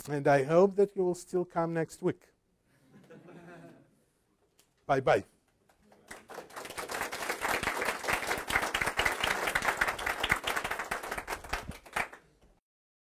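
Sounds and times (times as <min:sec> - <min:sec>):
audience applauding: 0:05.7 - 0:12.3.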